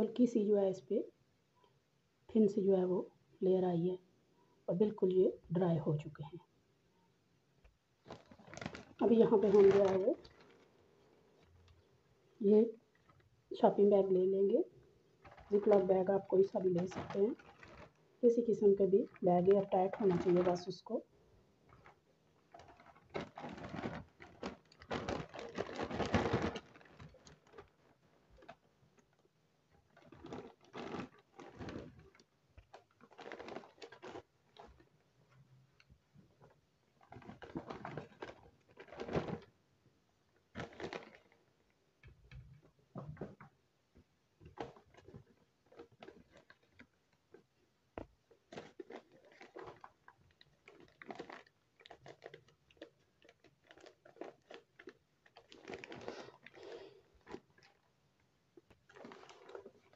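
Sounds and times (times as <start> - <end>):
plastic bags crinkling: 8.0 - 14.6, 15.2 - 21.0, 21.7 - 35.9, 36.5 - 39.6, 40.4 - 41.6, 44.4 - 57.9, 58.6 - 59.9.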